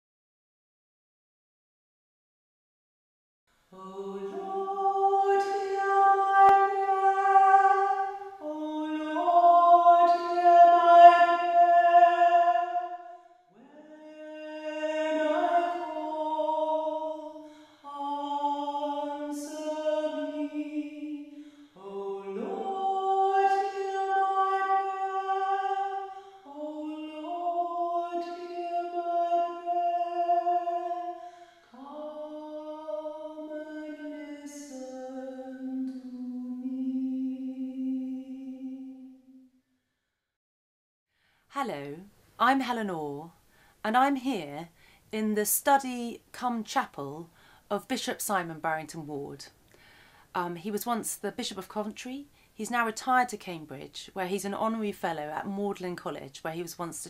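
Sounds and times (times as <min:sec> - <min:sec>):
voices singing a slow chant: 0:03.7 - 0:39.5.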